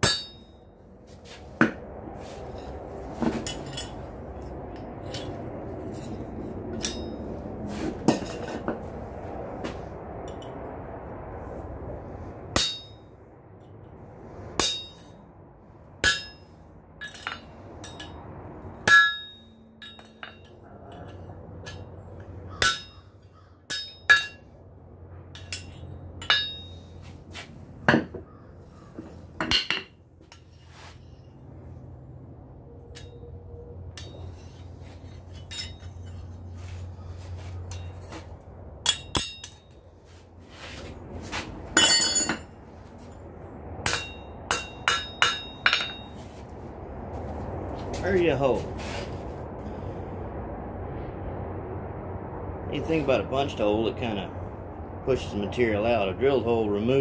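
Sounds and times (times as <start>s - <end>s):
hammer striking steel on anvil: 0.0s - 0.7s, 6.8s - 7.2s, 12.5s - 13.1s, 14.6s - 15.2s, 16.0s - 18.2s, 18.8s - 21.9s, 22.5s - 23.1s, 23.7s - 24.5s, 25.3s - 26.9s, 29.4s - 29.9s, 33.9s - 36.3s, 38.8s - 39.8s, 41.8s - 42.5s, 43.8s - 46.2s.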